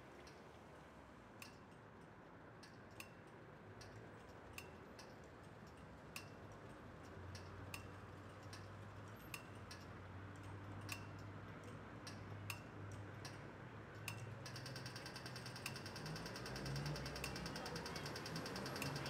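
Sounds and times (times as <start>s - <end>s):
faint low traffic hum: 0.0s - 19.0s
crossing signal ticking: 14.0s - 19.0s.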